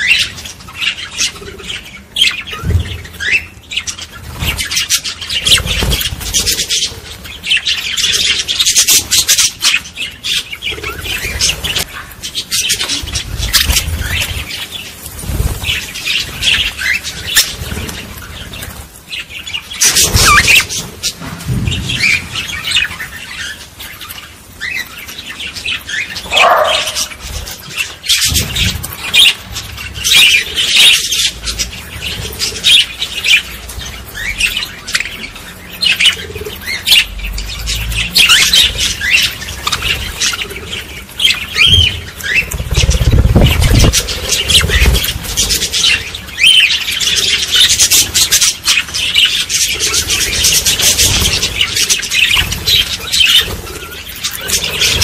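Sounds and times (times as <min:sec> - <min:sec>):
budgerigars chattering: 0:15.6 - 0:20.9, 0:21.5 - 0:55.0.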